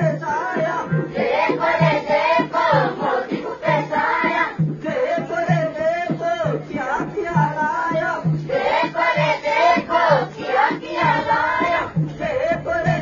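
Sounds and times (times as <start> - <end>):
group of voices singing: 0.0 - 13.0
steady low drum beat: 0.0 - 13.0.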